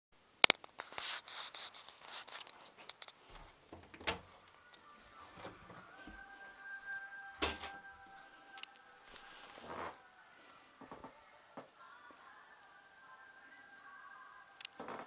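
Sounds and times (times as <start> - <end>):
rubbing and rustling on microphone: 0.6 - 3.6.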